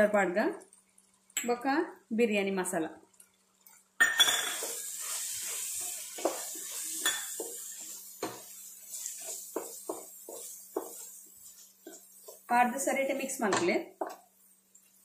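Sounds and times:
masala sizzling in a pot: 0.0s - 15.0s
wooden spatula scraping a pot: 4.6s - 14.2s.

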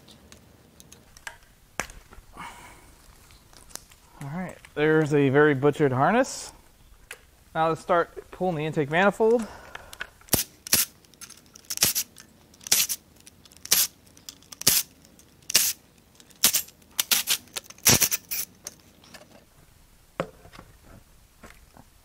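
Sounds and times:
hand ratchet clicking: 10.3s - 18.5s.

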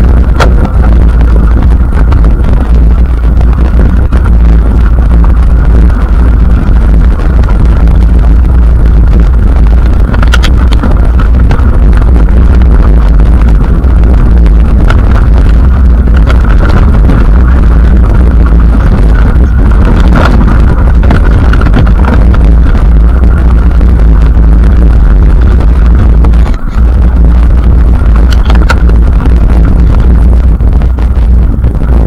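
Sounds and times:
wind buffeting microphone: 0.0s - 32.0s
bike clicks and rattles: 10.0s - 12.0s, 28.1s - 29.0s.

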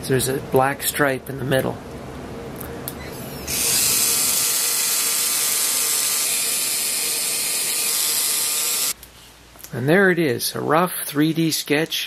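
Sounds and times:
small motor and gears whirring: 3.4s - 9.0s.

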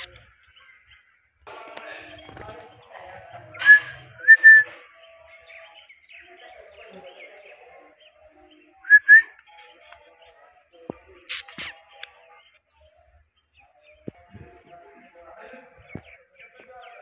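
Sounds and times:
soft low bird chatter: 0.0s - 17.0s
parakeets whistling: 3.6s - 4.7s, 11.2s - 12.0s.

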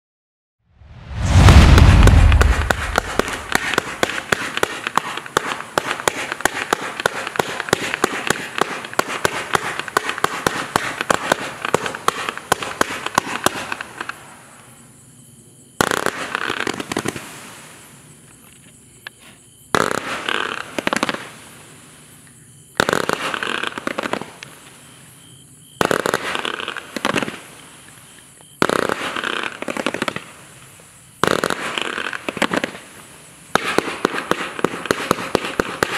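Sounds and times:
fireworks launch shots: 0.8s - 14.3s, 15.8s - 17.9s, 25.8s - 27.6s, 31.2s - 32.9s, 33.5s - 35.9s
fireworks volleys: 0.8s - 14.6s, 15.8s - 18.6s, 19.2s - 25.1s, 25.8s - 35.9s.

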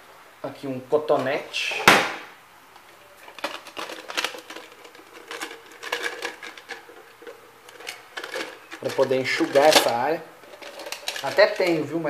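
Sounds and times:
hands rummaging small hard objects: 3.2s - 11.9s.

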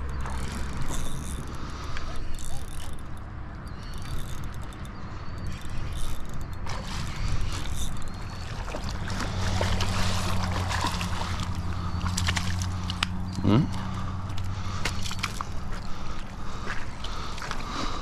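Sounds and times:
fish thrashing and splashing: 0.0s - 18.0s
steady low hum: 0.0s - 18.0s.

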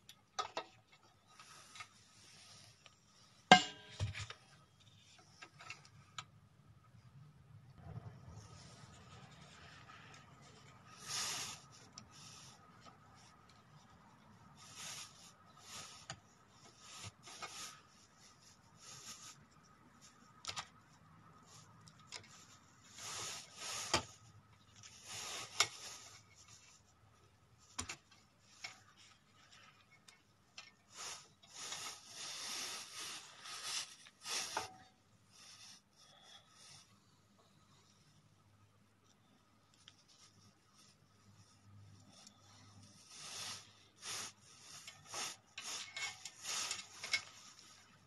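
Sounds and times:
rubbing and scraping: 21.5s - 36.0s, 39.8s - 48.0s.

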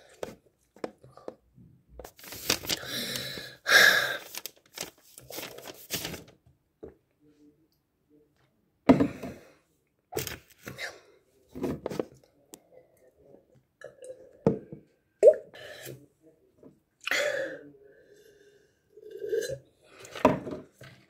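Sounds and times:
boy gasping and grunting: 2.7s - 4.4s.

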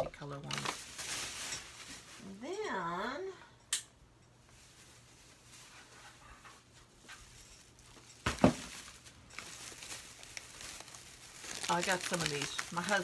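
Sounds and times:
plastic bag rustling: 0.1s - 2.4s, 4.4s - 13.0s
bag thump on table: 8.2s - 8.8s.

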